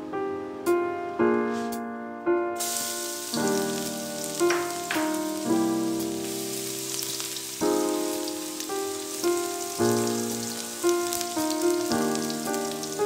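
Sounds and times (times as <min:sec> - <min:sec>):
piano music: 0:00.0 - 0:13.0
garlic sizzling in oil: 0:02.6 - 0:13.0.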